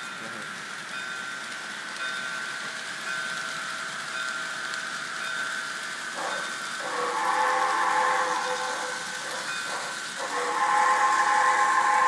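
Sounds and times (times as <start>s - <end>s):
steady steam hiss: 0.0s - 12.0s
train whistle: 6.2s - 12.0s.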